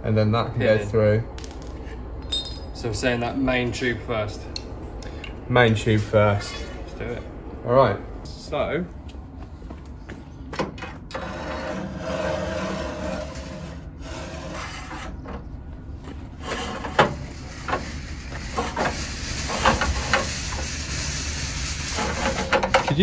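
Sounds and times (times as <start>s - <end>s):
steel tube scraping: 11.1s - 15.2s, 16.4s - 23.0s.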